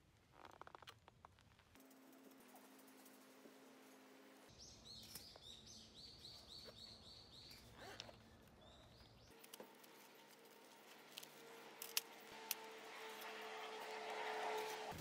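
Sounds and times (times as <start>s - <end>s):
faint bird chirping: 4.5s - 9.4s.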